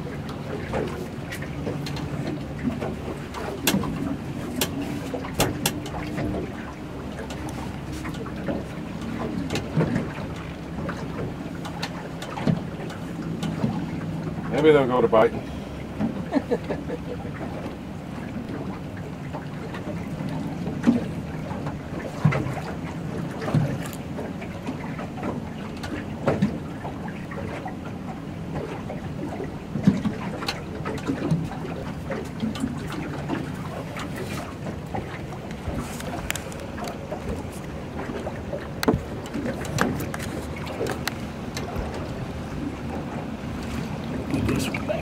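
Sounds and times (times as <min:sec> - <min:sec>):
outboard motor humming: 0:00.0 - 0:45.0
water noise: 0:00.0 - 0:45.0
wind: 0:00.0 - 0:45.0
clicks and knocks of gear: 0:23.6 - 0:24.1, 0:35.5 - 0:37.7, 0:38.8 - 0:41.7.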